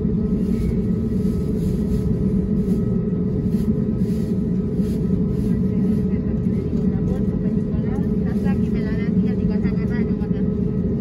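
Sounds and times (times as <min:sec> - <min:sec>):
airliner engines humming: 0:00.0 - 0:11.0.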